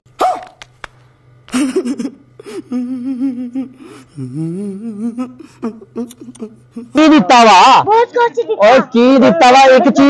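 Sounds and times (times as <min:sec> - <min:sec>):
faint low hum: 0:00.2 - 0:10.0
person making wavering vocal notes: 0:02.6 - 0:07.0.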